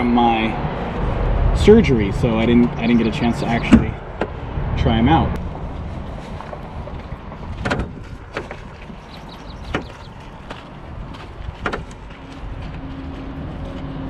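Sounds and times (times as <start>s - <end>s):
wind rumble on microphone: 0.0s - 14.0s.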